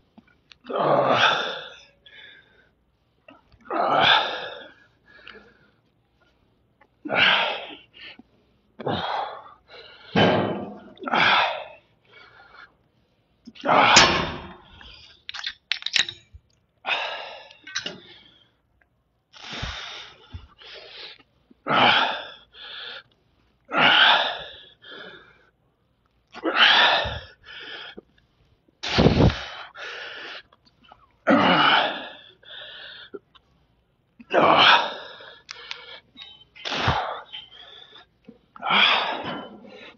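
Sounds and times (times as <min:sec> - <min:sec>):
man breathing forcefully: 0:19.4 - 0:21.2, 0:28.8 - 0:30.5, 0:31.6 - 0:33.2.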